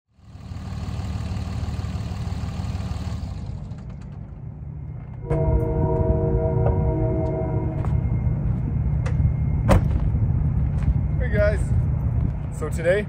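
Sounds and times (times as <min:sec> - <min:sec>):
low rumbling noise: 0:03.3 - 0:13.0
horn sounding a chord: 0:05.2 - 0:08.4.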